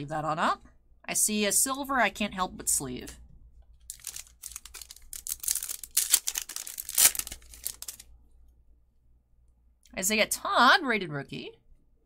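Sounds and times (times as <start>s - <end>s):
foil wrapper crinkling and tearing: 3.9s - 8.1s.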